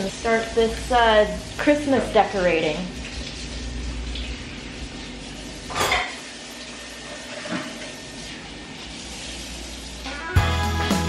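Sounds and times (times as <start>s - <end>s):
music with strong beat: 10.4s - 11.0s.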